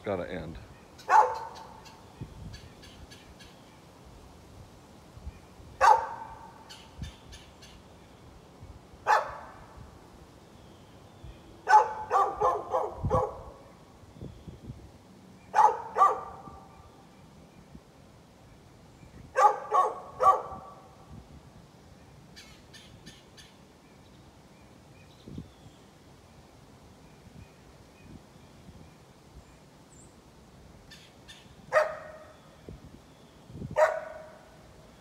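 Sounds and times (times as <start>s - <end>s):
dog barking: 1.1s - 1.7s, 5.8s - 6.5s, 9.1s - 9.6s, 11.6s - 13.6s, 15.5s - 16.7s, 19.4s - 20.8s, 31.7s - 32.3s, 33.8s - 34.5s.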